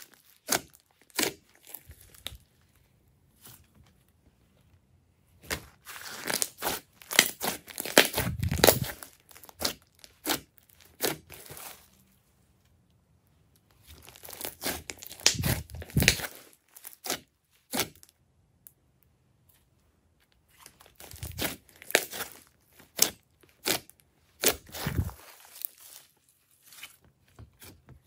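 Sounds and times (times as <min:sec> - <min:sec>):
slime squishing and crackling: 0:00.0 - 0:02.6, 0:05.4 - 0:12.0, 0:13.7 - 0:18.1, 0:20.4 - 0:28.0.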